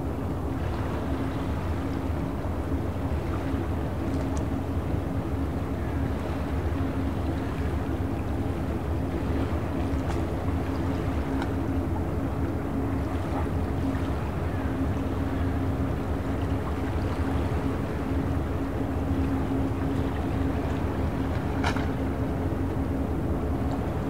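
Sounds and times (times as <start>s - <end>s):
boat engine running: 0.0s - 24.0s.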